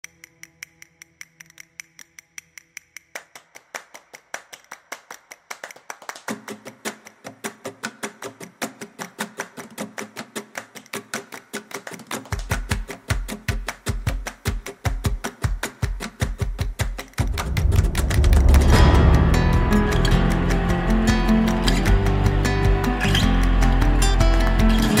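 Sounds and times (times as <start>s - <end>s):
fast ticking beat: 7.0s - 25.0s
low bass line: 17.2s - 25.0s.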